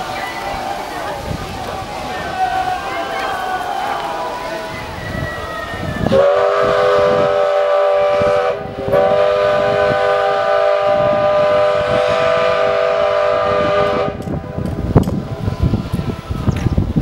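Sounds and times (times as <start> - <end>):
steam locomotive whistle: 2.5 - 14.7.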